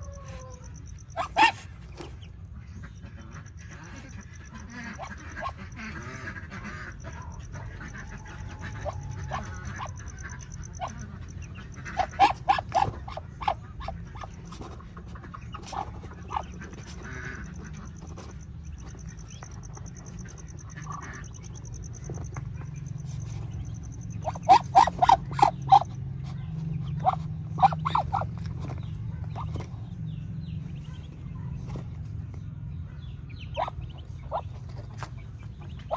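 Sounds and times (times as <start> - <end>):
duck giving harsh calls: 0.8 - 2.0, 2.9 - 14.6, 15.3 - 26.0, 26.9 - 28.3.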